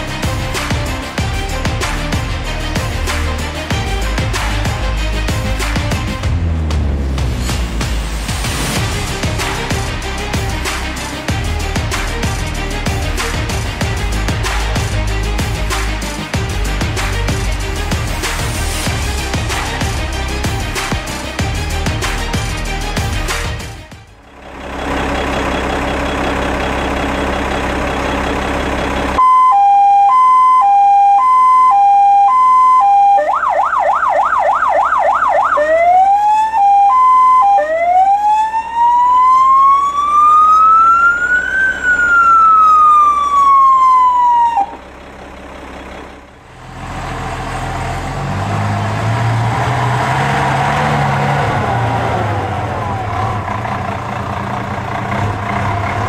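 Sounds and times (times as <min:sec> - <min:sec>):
vehicle engine running: 0:00.0 - 0:29.2, 0:40.8 - 0:56.0
fire engine siren: 0:29.2 - 0:45.4, 0:47.7 - 0:56.0.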